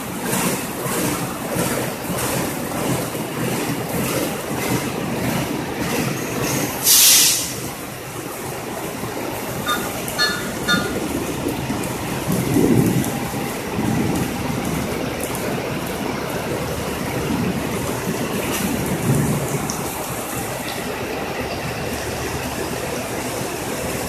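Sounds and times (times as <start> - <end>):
heavy rain: 0.0 - 24.0
train wheels clacking over rail joints: 0.0 - 24.0
loud sharp hiss: 6.8 - 7.6.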